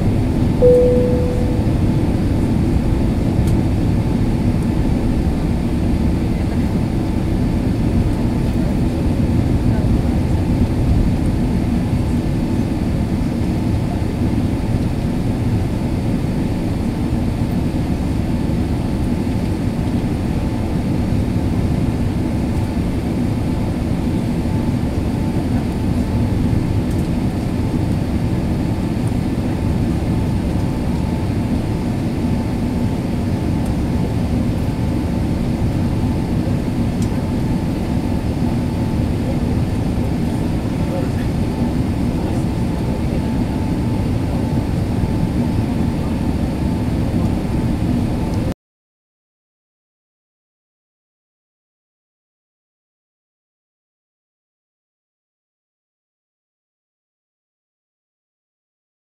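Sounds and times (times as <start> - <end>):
airplane cabin engine rumble: 0.0 - 48.5
faint steady hum: 0.6 - 2.9.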